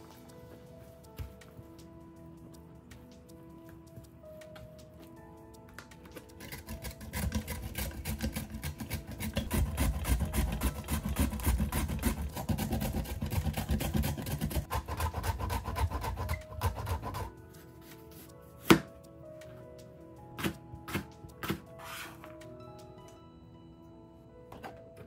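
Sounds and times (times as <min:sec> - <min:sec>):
carrot rasping on grater: 0:06.4 - 0:17.3.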